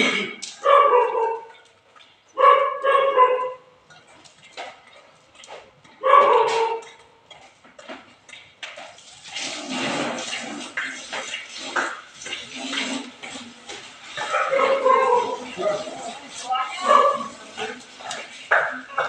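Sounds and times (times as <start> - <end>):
dog barking: 0.6 - 1.6, 2.4 - 3.6, 6.0 - 6.8, 14.2 - 15.9, 16.8 - 17.7
burning straw crackling: 8.7 - 19.0.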